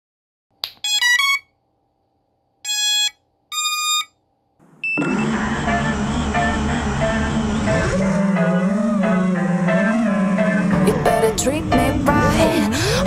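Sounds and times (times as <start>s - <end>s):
electronic startup beeps from motors: 2.7s - 4.2s, 4.8s - 8.6s
music: 5.7s - 13.0s.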